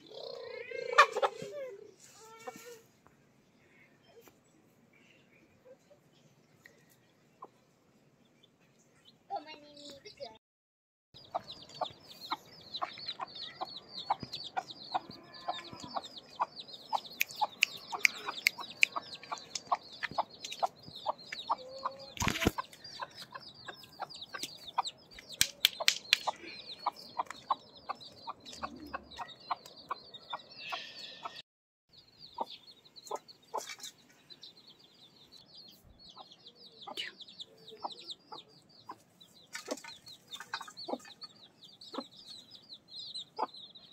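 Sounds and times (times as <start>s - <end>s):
hen clucking: 0.0s - 2.8s, 11.2s - 31.4s, 36.0s - 42.4s, 43.1s - 43.7s
chicks peeping: 11.2s - 43.9s.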